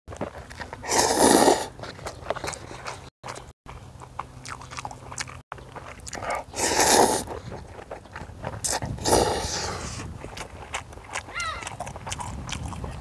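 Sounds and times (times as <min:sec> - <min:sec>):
chewing: 0:00.1 - 0:13.0
noodles being slurped: 0:00.3 - 0:03.4, 0:04.5 - 0:13.0
wet mouth clicks: 0:04.1 - 0:13.0.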